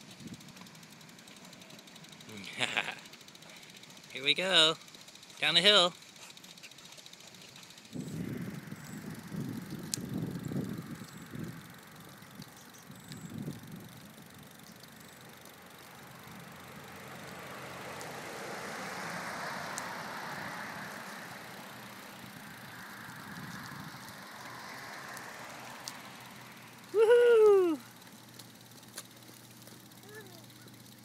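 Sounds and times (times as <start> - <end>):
person hooting woo call: 26.9 - 27.9.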